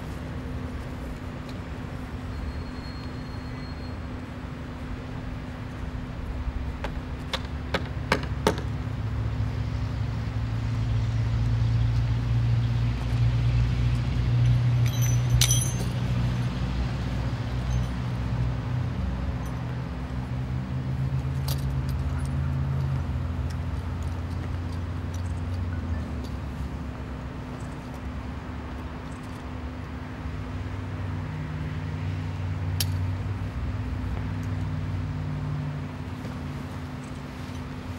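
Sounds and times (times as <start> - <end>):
metal hardware clinking: 14.5 - 16.1, 32.8 - 33.1.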